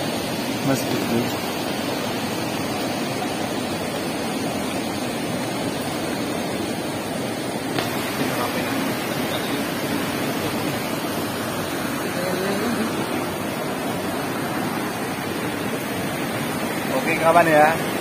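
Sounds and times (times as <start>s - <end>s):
river rushing over rocks: 0.0s - 18.0s.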